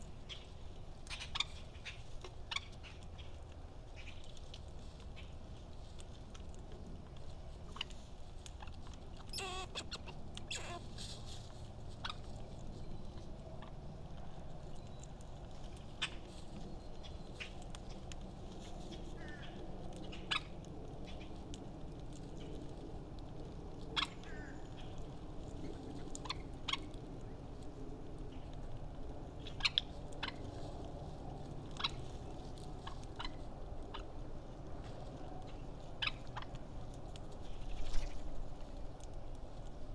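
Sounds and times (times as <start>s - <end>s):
low background noise: 0.0s - 39.9s
low outdoor rumble: 0.0s - 39.9s
faint bird chirps and clicks: 0.2s - 5.4s, 12.0s - 22.8s, 23.8s - 27.5s, 29.4s - 34.1s, 35.1s - 39.4s.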